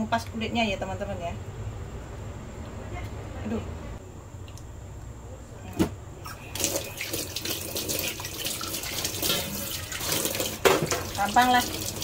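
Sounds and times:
tap water running into metal sink: 0:06.5 - 0:12.0.

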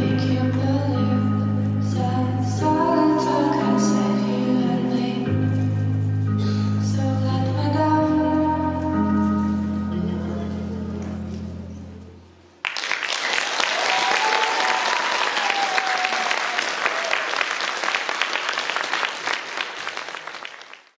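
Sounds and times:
audience applause: 0:12.6 - 0:21.0.

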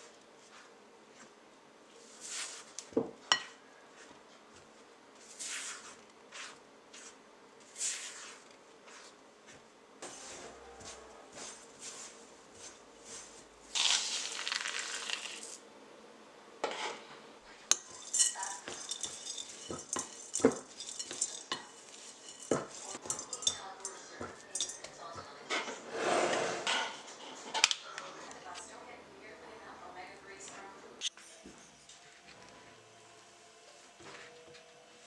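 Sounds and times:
utensil clinking against bowl: 0:17.7 - 0:25.6.

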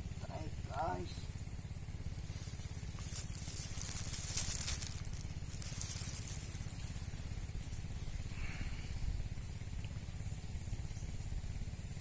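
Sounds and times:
low engine drone: 0:00.0 - 0:12.0
fishing reel rattling: 0:02.4 - 0:07.0.

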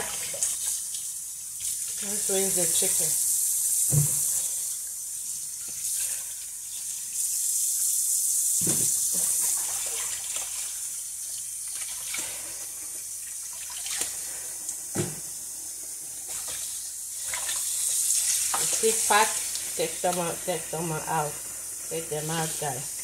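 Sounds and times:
tap running into basin: 0:08.6 - 0:10.7
water splashing and sloshing: 0:08.6 - 0:10.9, 0:11.6 - 0:15.2, 0:16.2 - 0:19.7.

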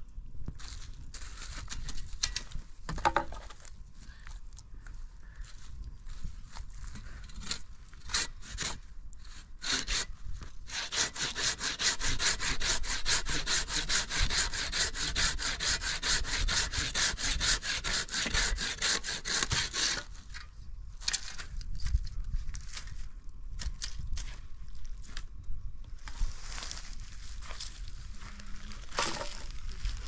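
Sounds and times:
hand saw cutting wood: 0:07.4 - 0:10.1, 0:10.7 - 0:20.2.

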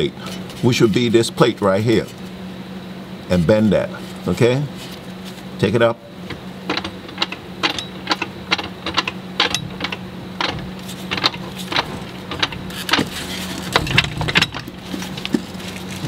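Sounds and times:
steady low hum: 0:00.0 - 0:16.0
car jack clicking and knocking: 0:06.3 - 0:15.5.

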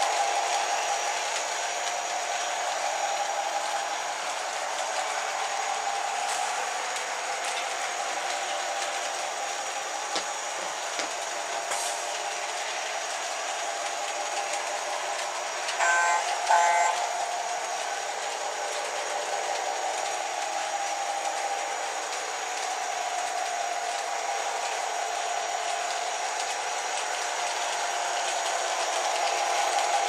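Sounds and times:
model trains rolling on track: 0:00.0 - 0:30.0
locomotive signal blasts: 0:15.8 - 0:17.0.

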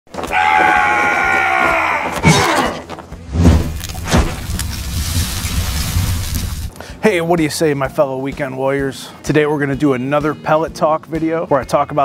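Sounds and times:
low rumble: 0:03.2 - 0:06.7.

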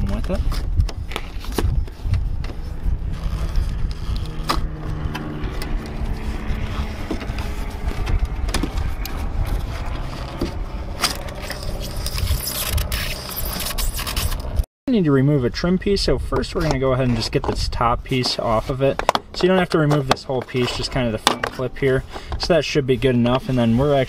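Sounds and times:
wires scraping through rubber: 0:00.0 - 0:14.6, 0:16.6 - 0:24.0
low rumble: 0:00.0 - 0:18.1.

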